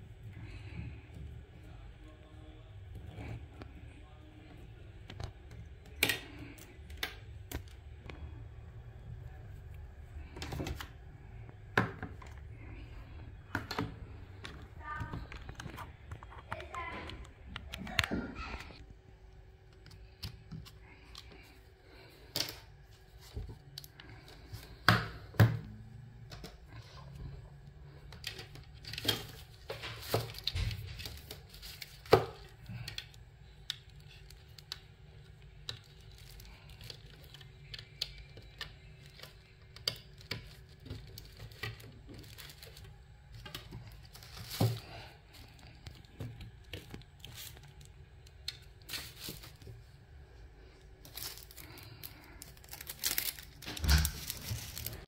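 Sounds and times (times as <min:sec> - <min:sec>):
packaging rustling and crinkling: 0:28.2 - 0:33.1, 0:35.7 - 0:49.9, 0:50.8 - 0:55.0.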